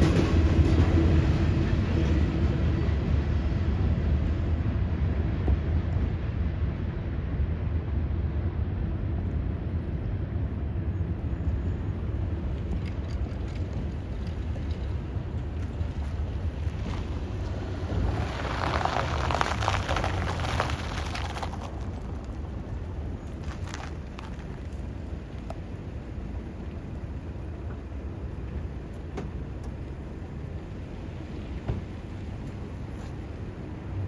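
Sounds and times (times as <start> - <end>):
train cars rattling and clattering: 0.0 - 3.0
train wheels rumbling on rails: 0.0 - 6.4.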